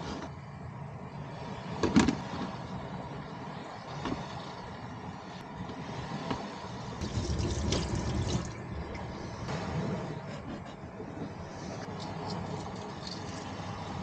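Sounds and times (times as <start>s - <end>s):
tap water running in sink: 7.0s - 8.6s.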